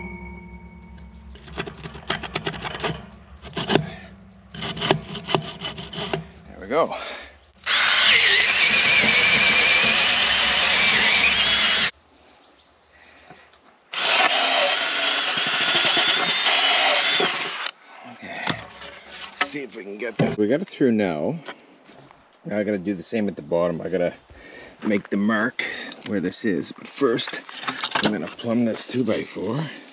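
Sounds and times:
cordless drill boring through wood: 7.6s - 11.9s, 13.9s - 17.8s.

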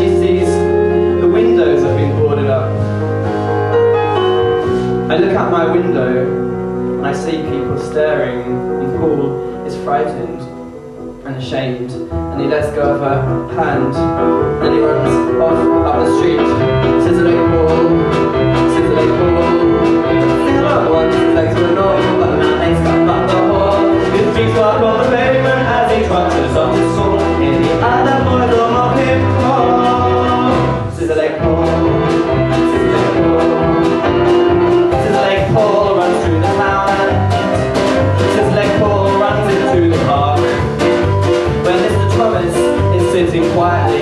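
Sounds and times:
bass notes: 0.0s - 44.0s
keyboard: 0.0s - 44.0s
person singing: 12.5s - 44.0s
steady drum beat: 16.4s - 44.0s.

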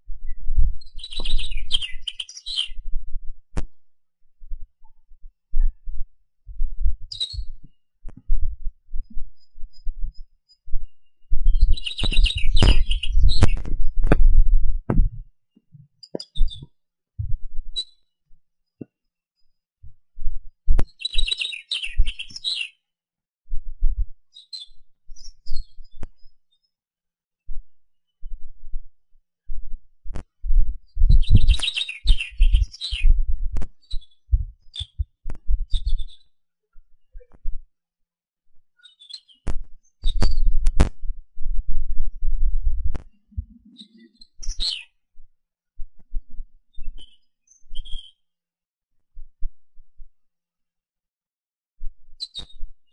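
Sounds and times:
small bird chirping: 0.2s - 3.0s, 7.1s - 7.7s, 9.0s - 14.2s, 16.0s - 16.8s, 17.8s - 18.1s, 20.8s - 22.8s, 23.9s - 26.7s, 30.9s - 36.3s, 38.8s - 40.7s, 43.7s - 44.9s, 46.7s - 48.2s, 52.2s - 52.6s
wind buffeting microphone: 10.8s - 15.3s, 30.4s - 36.2s.

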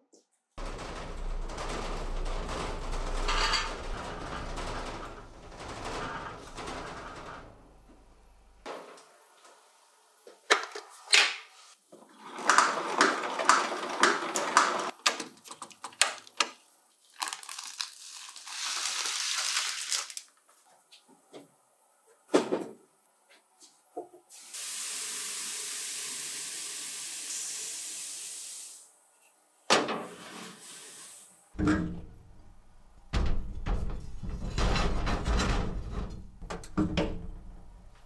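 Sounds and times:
air hiss: 24.3s - 28.9s.

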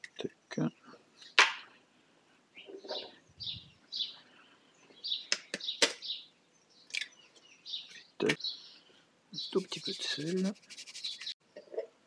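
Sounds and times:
bird chirps: 2.6s - 11.4s.

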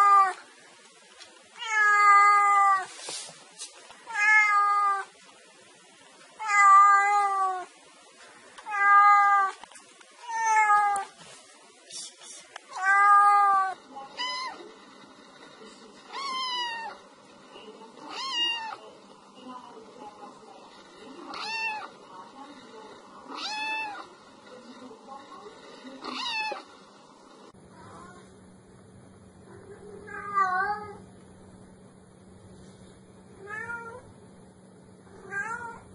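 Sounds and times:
cat meowing: 1.6s - 2.9s, 4.1s - 5.1s, 6.4s - 7.7s, 8.6s - 9.6s, 10.2s - 11.1s, 12.7s - 14.6s, 16.1s - 17.0s, 18.1s - 18.8s, 21.3s - 21.9s, 23.3s - 24.1s, 26.0s - 26.7s, 35.2s - 35.8s.

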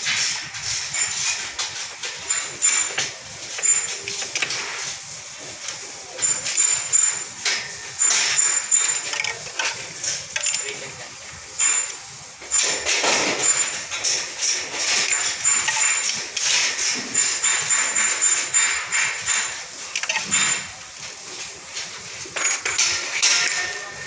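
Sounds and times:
metal tools clinking: 0.2s - 5.0s, 6.2s - 11.0s, 11.6s - 20.8s, 21.8s - 24.0s
socket ratchet clicking: 11.6s - 20.6s.

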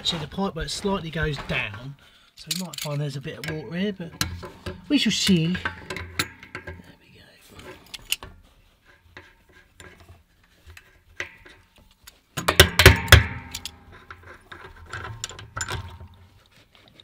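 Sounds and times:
metal tools clicking on brass: 2.4s - 6.9s.

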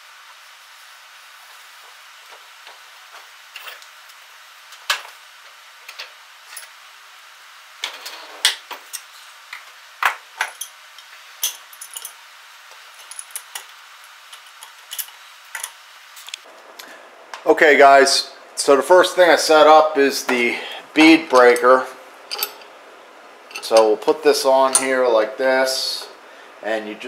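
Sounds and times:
steady hiss: 0.0s - 27.0s
metal clicks and clanks: 22.3s - 22.7s, 23.5s - 24.9s.

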